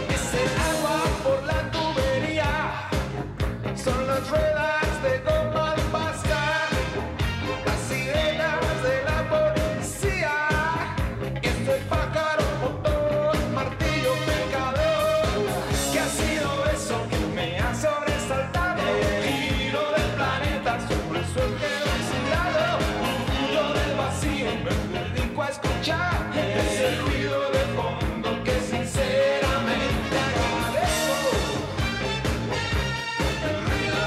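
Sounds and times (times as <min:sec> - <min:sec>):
man singing: 0:00.0 - 0:32.0, 0:33.2 - 0:34.0
pop-rock band playing: 0:00.0 - 0:34.0.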